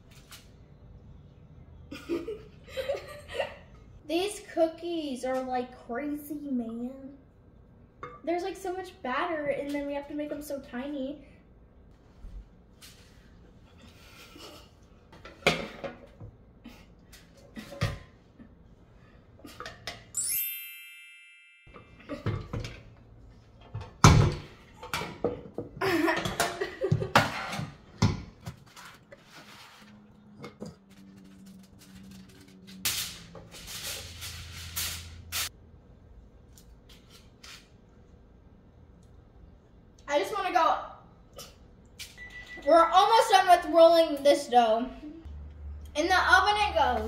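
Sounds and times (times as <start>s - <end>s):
shimmering chime: 20.2s - 21.8s
rustling and scraping handling: 28.4s - 35.0s.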